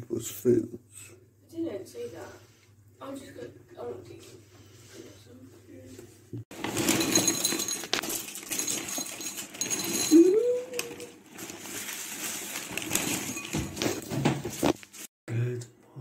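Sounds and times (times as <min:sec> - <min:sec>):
bag rustling: 0:06.5 - 0:15.1.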